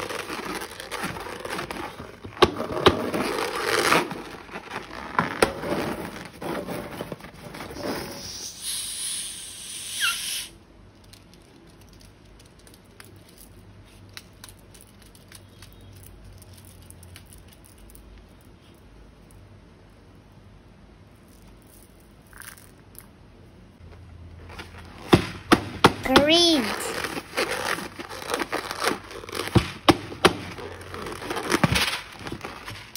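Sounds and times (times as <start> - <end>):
plastic containers crinkling: 0.0 - 8.0, 26.6 - 32.9
hiss: 7.8 - 10.6
brief squeak: 9.9 - 10.5.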